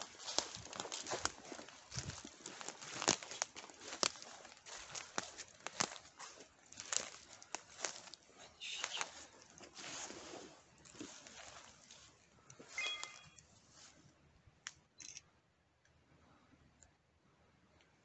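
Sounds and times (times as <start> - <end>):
twigs snapping: 0.0 - 8.2
footsteps through dead leaves: 0.0 - 13.9.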